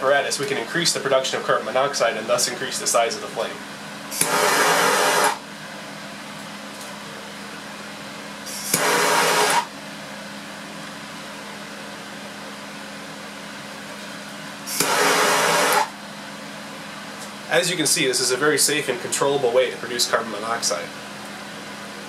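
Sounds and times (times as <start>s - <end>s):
gas torch rushing: 4.1s - 5.4s, 8.4s - 9.8s, 14.6s - 16.0s.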